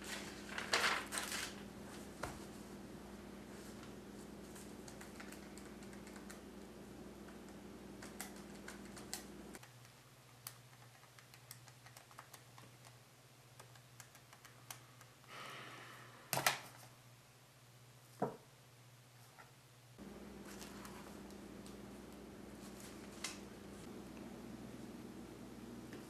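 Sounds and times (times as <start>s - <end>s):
paper rustle: 0.0s - 2.7s, 20.4s - 21.4s, 22.6s - 23.9s
steady low hum: 0.0s - 9.6s, 19.9s - 26.0s.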